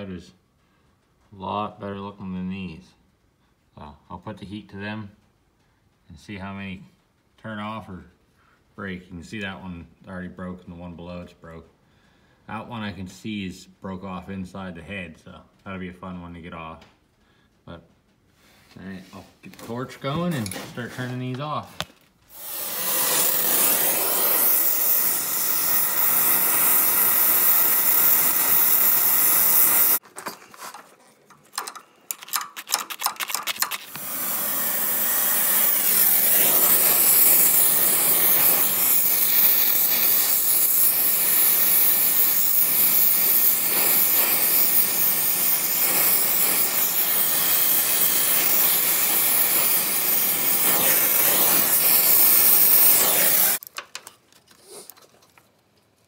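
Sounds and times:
gas torch hissing: 0:18.4 - 0:30.0, 0:33.6 - 0:53.6.

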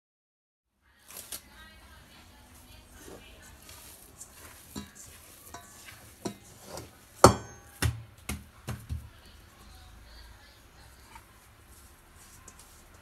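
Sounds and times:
metal bowl knocking on countertop: 0:04.7 - 0:09.1.

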